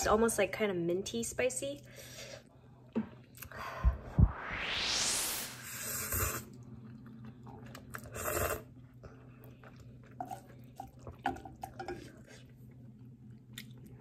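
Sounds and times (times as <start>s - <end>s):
person slurping noodles: 5.6s - 9.3s
chewing: 6.6s - 14.0s.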